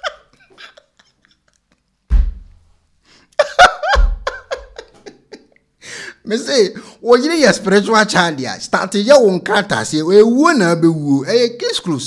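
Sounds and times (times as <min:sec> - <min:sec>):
low thuds on microphone: 0:02.1 - 0:02.6, 0:03.9 - 0:04.4
people talking: 0:06.3 - 0:12.0.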